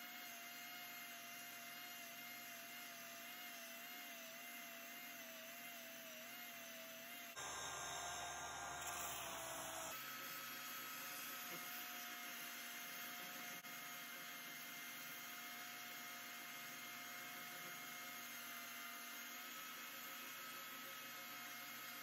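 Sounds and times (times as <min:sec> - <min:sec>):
belt sander running: 0:07.4 - 0:10.0.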